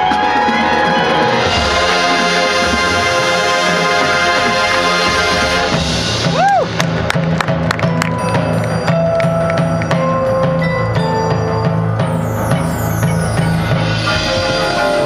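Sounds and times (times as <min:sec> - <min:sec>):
marching percussion: 0:00.0 - 0:15.0
sharp percussion hits: 0:00.0 - 0:15.0
brass chord: 0:00.1 - 0:06.2, 0:13.8 - 0:15.0.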